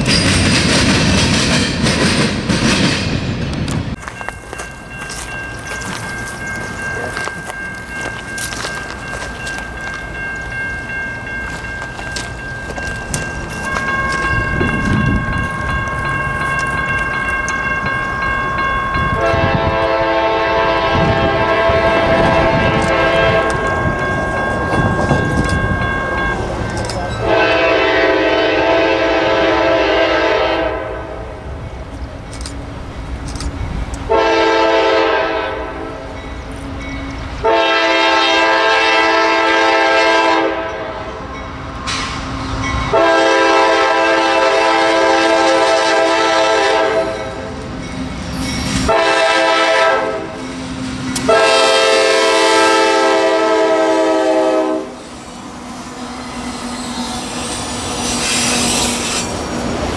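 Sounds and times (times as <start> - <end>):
train rumble and wheel clatter: 0.0 - 59.9
locomotive air horn blasts: 19.1 - 23.6, 27.2 - 31.2, 34.1 - 36.1, 37.4 - 41.1, 42.9 - 47.2, 48.8 - 50.4, 51.3 - 55.0.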